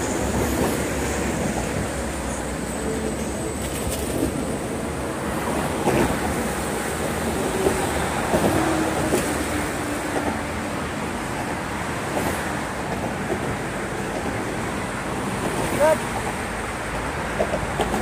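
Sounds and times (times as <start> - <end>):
road traffic: 0.0 - 18.0
wind: 0.0 - 18.0.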